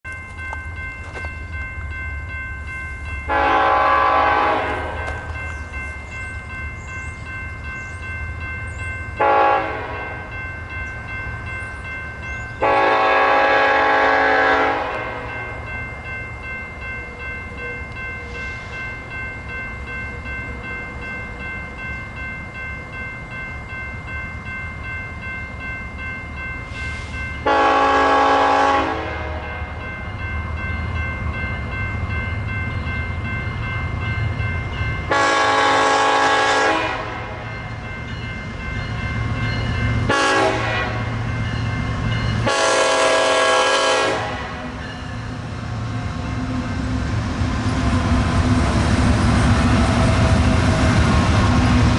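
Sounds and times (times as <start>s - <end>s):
train cars rumbling and rattling: 0.0s - 51.9s
locomotive horn blasts: 3.3s - 5.2s, 9.2s - 10.2s, 12.6s - 15.3s, 27.4s - 29.6s, 35.1s - 37.5s, 40.1s - 41.2s, 42.4s - 44.8s.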